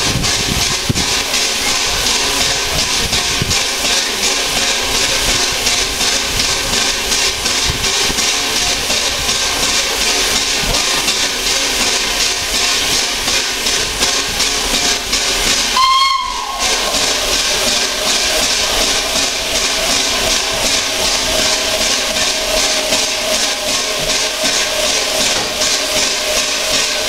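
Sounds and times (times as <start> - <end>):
steam hissing from locomotive: 0.0 - 27.0
locomotive whistle: 15.7 - 17.4.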